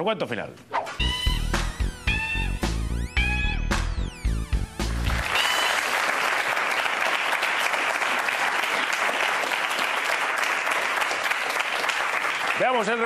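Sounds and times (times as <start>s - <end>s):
studio audience clapping: 3.7s - 13.0s.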